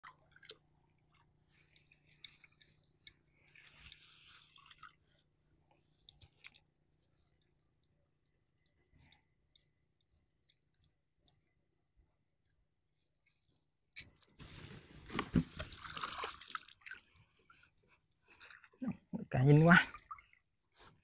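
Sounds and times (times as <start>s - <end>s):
crackling rustle of net: 3.3s - 5.2s.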